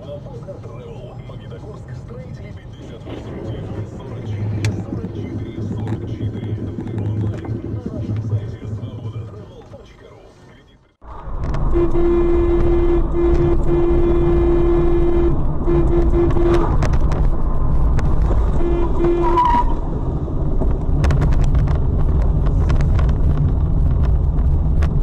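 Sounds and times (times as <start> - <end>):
car road and engine rumble: 0.0 - 25.0
car horn blasts: 11.6 - 17.1, 18.5 - 19.8.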